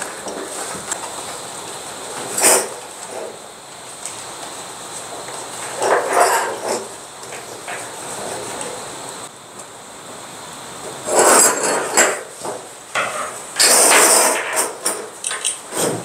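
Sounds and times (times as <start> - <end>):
metal clattering on table: 11.1 - 16.0.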